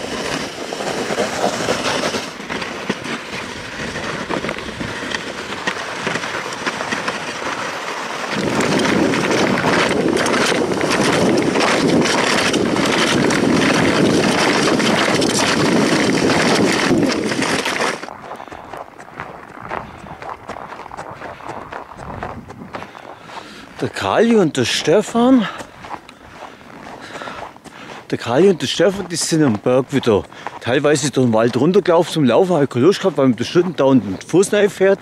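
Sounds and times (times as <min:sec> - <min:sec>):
sled rattling over bumps: 0:00.0 - 0:35.0
sled runners scraping over snow: 0:00.0 - 0:35.0
wind on microphone: 0:03.3 - 0:07.1, 0:08.3 - 0:23.9.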